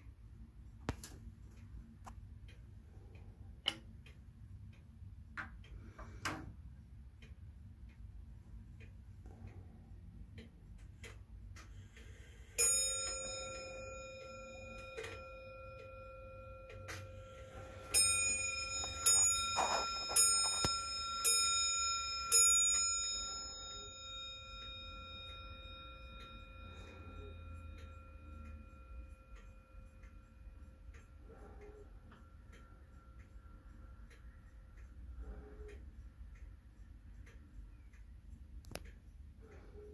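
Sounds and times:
pendulum clock ticking: 0:00.0 - 0:39.9
clock bell striking: 0:12.6 - 0:31.6.

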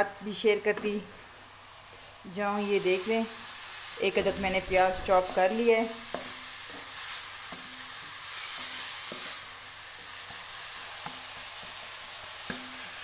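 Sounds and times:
onion sizzling in oil: 0:00.0 - 0:13.0
spatula scraping a pan: 0:04.0 - 0:09.5.

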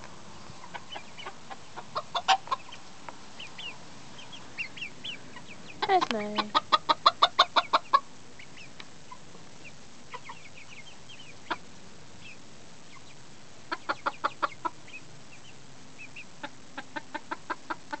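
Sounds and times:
chickens clucking: 0:00.0 - 0:18.0
faint high chirps: 0:07.7 - 0:16.5.

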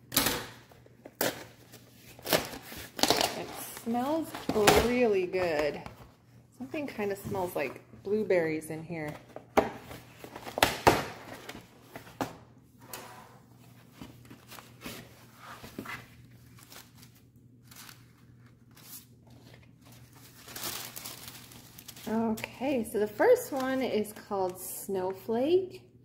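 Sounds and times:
cardboard and paper rustling: 0:08.9 - 0:12.4, 0:13.5 - 0:24.0
tissue paper crinkling: 0:13.7 - 0:22.6.

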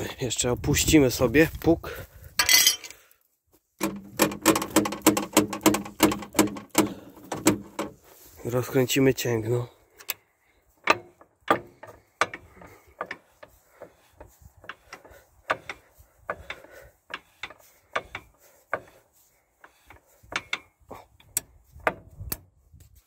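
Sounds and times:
metallic clicks and clanks of threaded rod: 0:02.4 - 0:03.2, 0:03.8 - 0:07.9, 0:09.9 - 0:22.5.

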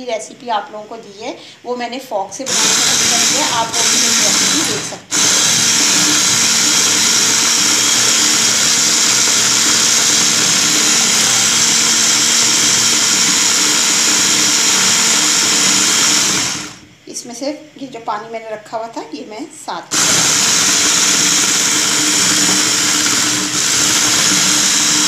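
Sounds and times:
electric mixer whipping: 0:02.5 - 0:16.9, 0:19.9 - 0:25.0.

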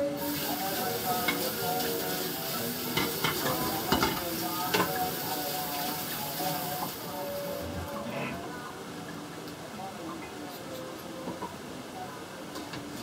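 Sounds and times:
tap running water into sink: 0:01.2 - 0:07.0
dishes clinking: 0:02.9 - 0:05.1.

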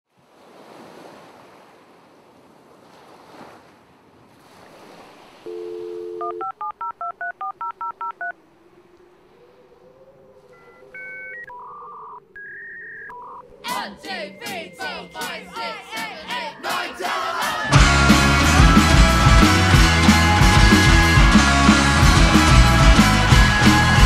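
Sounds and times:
faint low tone: 0:05.5 - 0:06.4
telephone dial tone: 0:05.5 - 0:08.3
touch-tone keypad beeps: 0:05.5 - 0:08.3
two-tone electronic beeps: 0:05.5 - 0:08.3, 0:10.6 - 0:13.5
soft wash of noise: 0:07.6 - 0:11.6.

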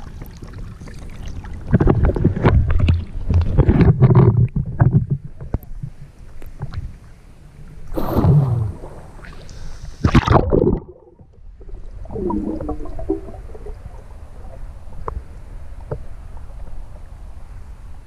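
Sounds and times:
water splashing: 0:07.9 - 0:14.7
underwater bubbling gurgles: 0:07.9 - 0:16.6.

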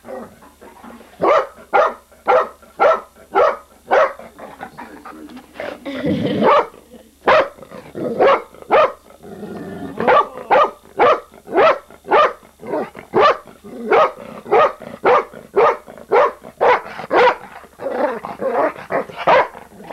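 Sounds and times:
dog barking sharply: 0:01.2 - 0:04.2.

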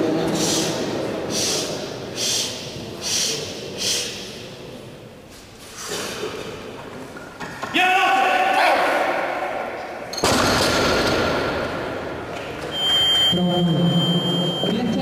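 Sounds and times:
sharp hissing breaths: 0:00.4 - 0:04.4.

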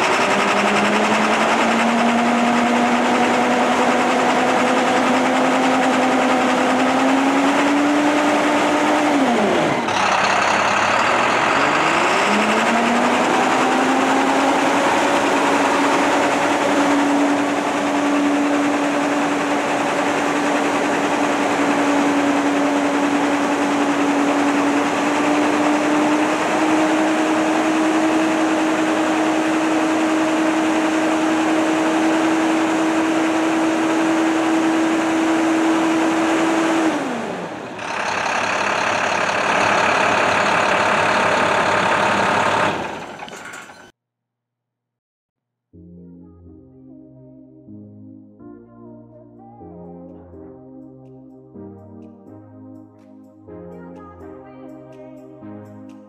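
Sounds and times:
vehicle engine whining: 0:00.0 - 0:43.9.

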